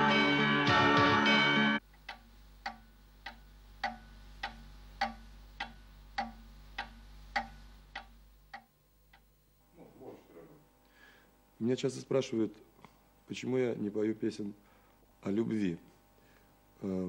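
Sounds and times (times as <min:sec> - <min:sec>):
faint low hum: 0:01.8 - 0:17.0
clock ticking: 0:01.9 - 0:09.3.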